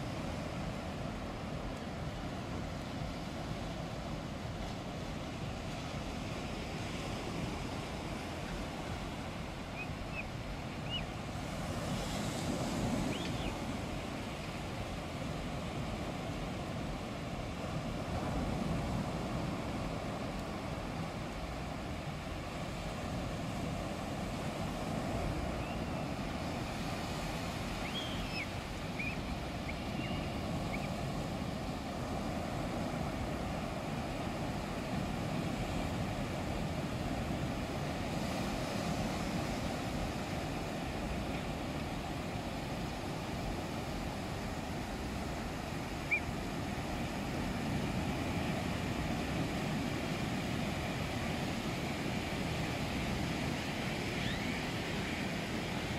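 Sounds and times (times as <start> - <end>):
waves washing up a beach: 0.0 - 55.9
faint high chirps: 27.8 - 30.9.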